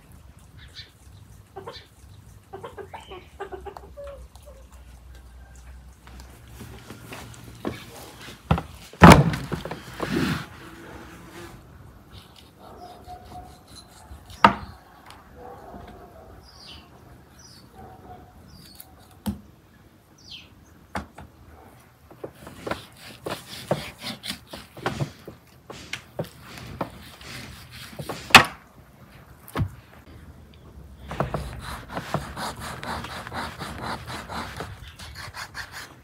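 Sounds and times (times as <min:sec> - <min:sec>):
faint birds chirping: 0:00.0 - 0:05.9, 0:12.1 - 0:19.1.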